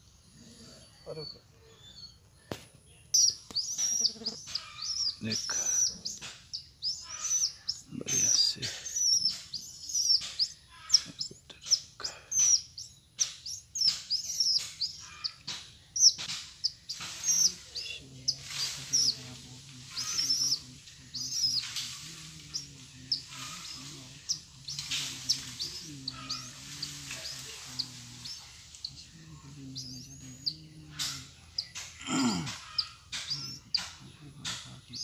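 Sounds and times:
birds chirping: 0.0 - 35.0.

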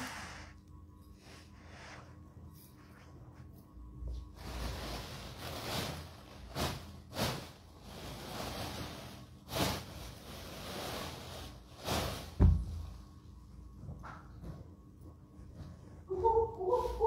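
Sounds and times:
thump: 12.4 - 12.8.

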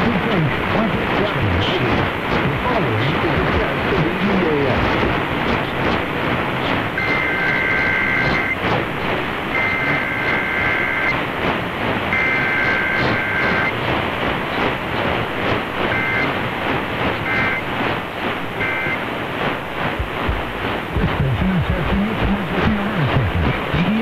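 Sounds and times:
radio static hiss: 0.0 - 24.0
two-tone warbling data tones: 6.7 - 8.6, 9.5 - 11.3, 12.1 - 13.8, 15.8 - 16.4, 17.1 - 17.7, 18.6 - 19.0.

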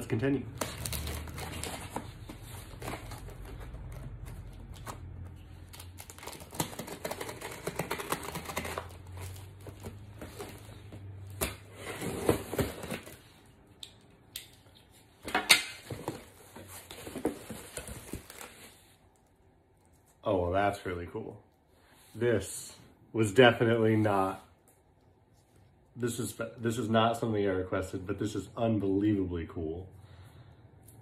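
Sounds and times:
cardboard tearing: 0.5 - 13.2.

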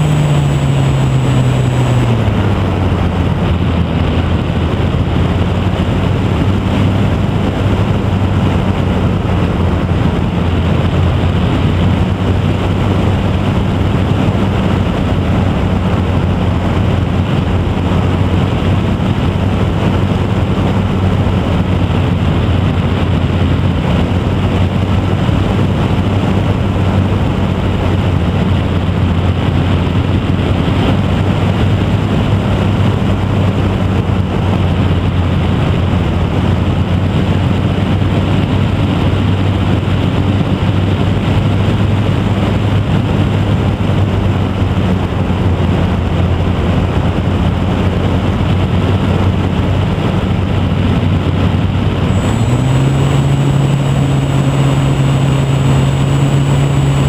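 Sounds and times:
electric motor and propeller: 0.0 - 57.0
wind rushing over microphone: 0.0 - 57.0.

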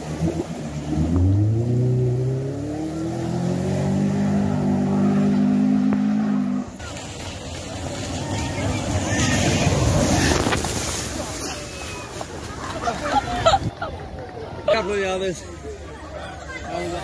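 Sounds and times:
car engine revving: 0.0 - 6.8
water splashing: 0.0 - 15.9.

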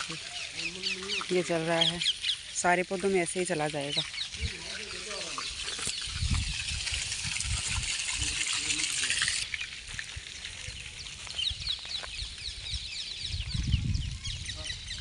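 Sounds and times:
birds chirping: 0.0 - 6.8, 8.0 - 15.0
water gushing from a pipe: 0.0 - 11.8.

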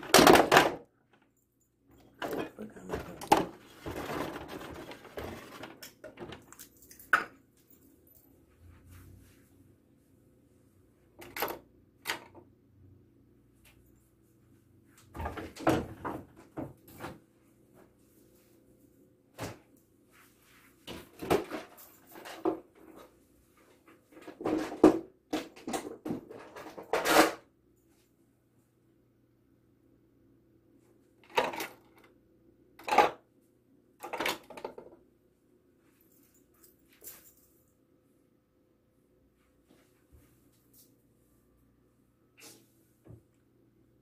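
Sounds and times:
household items clattering: 0.0 - 1.2, 1.9 - 7.4, 11.2 - 12.4, 20.9 - 23.1, 24.1 - 27.4, 31.2 - 32.1, 32.8 - 33.2, 34.0 - 34.9
drawer being handled: 2.1 - 6.5
faint steady hum: 27.4 - 44.0.

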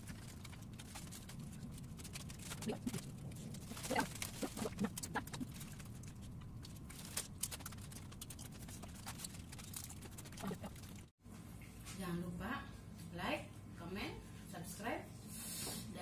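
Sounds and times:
crackers crunching: 0.0 - 11.1
plastic bag rustling: 0.0 - 11.1.

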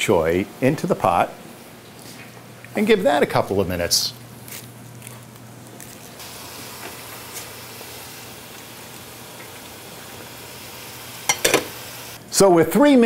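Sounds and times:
chips deep-frying in oil: 4.4 - 12.2.

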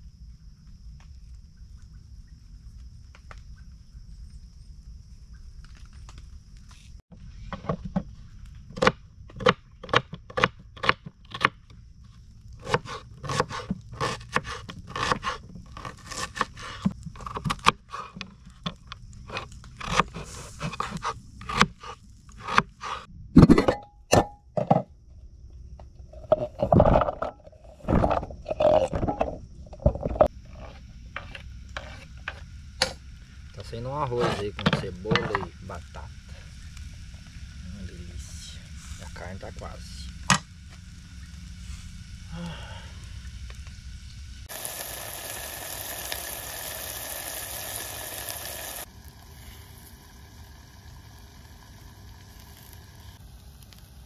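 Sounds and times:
scraping and crunching strokes: 11.3 - 23.6, 30.2 - 35.5.

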